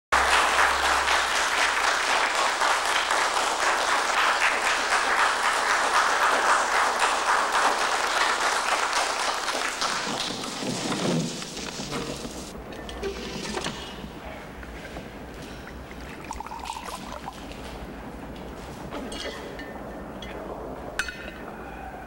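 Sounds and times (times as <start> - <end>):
crowd applauding: 0.1 - 10.9.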